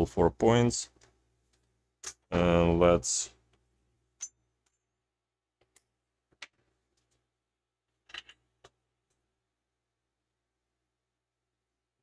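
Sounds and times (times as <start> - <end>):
faint clicks and taps of tools: 0.9 - 2.3, 5.6 - 7.3.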